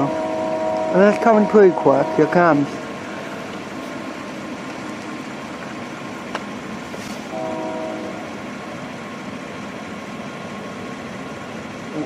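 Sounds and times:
locomotive air horn blast: 0.0 - 3.5, 7.0 - 8.6
diesel freight train rumbling: 0.0 - 12.0.

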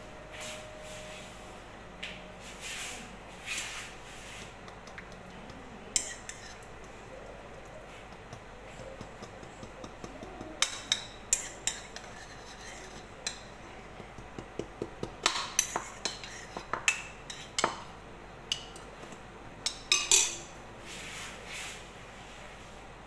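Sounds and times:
fork clinking against ceramic bowl: 5.9 - 7.0, 7.6 - 13.5, 19.6 - 20.5.

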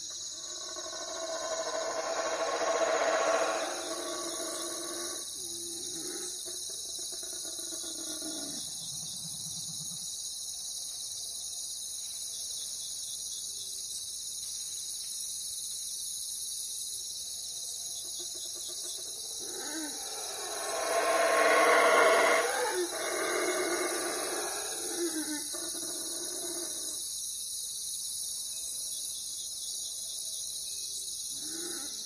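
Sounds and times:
cricket trill: 0.0 - 32.0
animal call with pitched tones: 0.6 - 5.2, 18.8 - 27.0.

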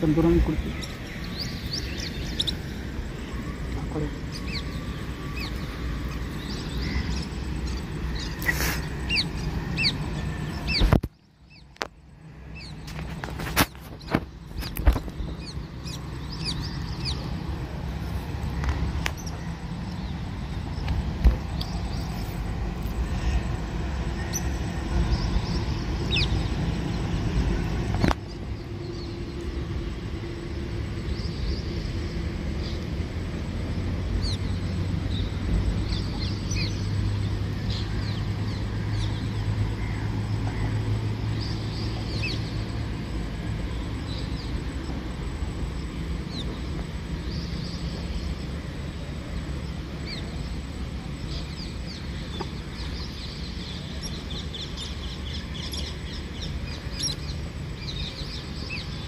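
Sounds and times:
bird chirps: 0.0 - 11.8, 13.7 - 17.4, 51.2 - 59.0
low steady hum: 0.0 - 59.0
steady low rumble: 0.0 - 59.0.

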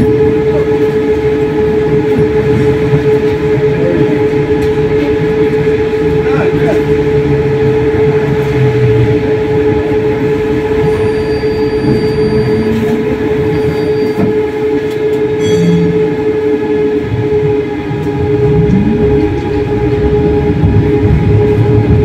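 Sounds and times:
tram running with whine: 0.0 - 22.0
rising tone: 17.9 - 22.0.

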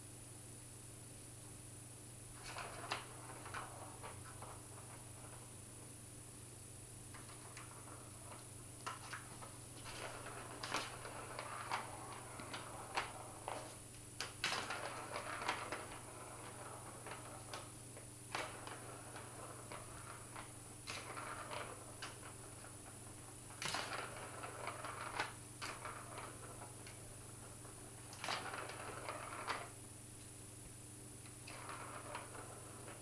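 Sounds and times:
plastic ball rattling in a tube: 7.1 - 17.7.

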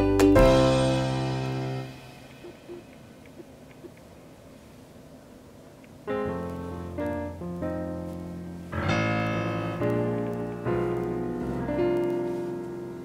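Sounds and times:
piano chords ringing: 0.0 - 2.9, 6.1 - 13.0.

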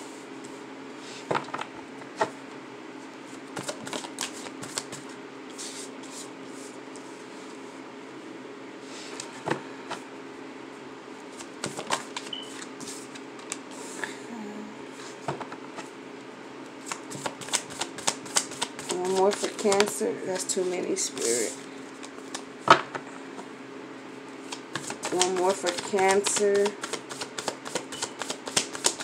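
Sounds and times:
faint steady hum: 0.0 - 29.0
cards being shuffled: 3.6 - 6.3, 11.3 - 14.0, 16.8 - 22.5, 24.4 - 29.0.

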